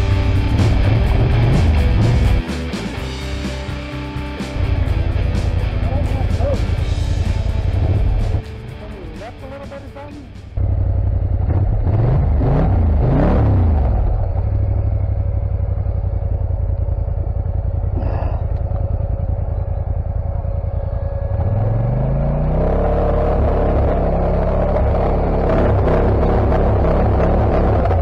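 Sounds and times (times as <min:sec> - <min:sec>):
quad bike engine revving: 0:11.3 - 0:14.4, 0:21.2 - 0:28.0.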